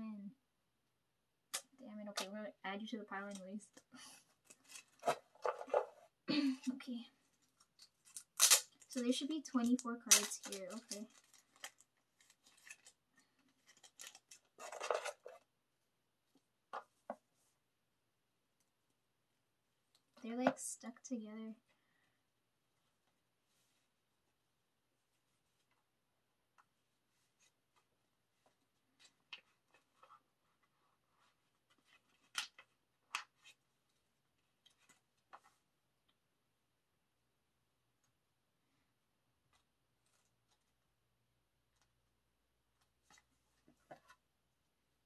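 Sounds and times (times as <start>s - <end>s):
cards rustling against each other: 6.7s - 15.4s.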